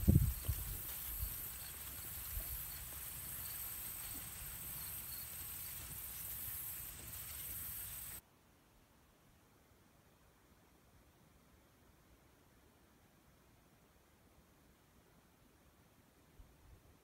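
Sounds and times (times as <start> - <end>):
insects chirping in grass: 0.0 - 8.2.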